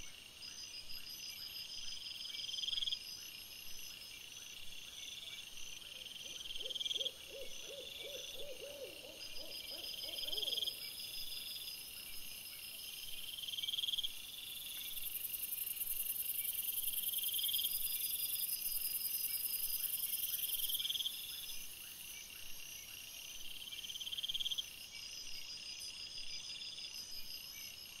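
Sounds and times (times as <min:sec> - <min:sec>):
insects trilling: 0:06.0 - 0:12.2.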